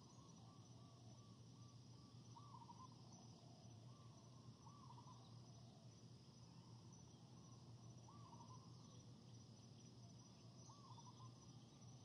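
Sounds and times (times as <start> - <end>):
insects chirring: 0.0 - 12.0
small animal calls: 2.4 - 3.0.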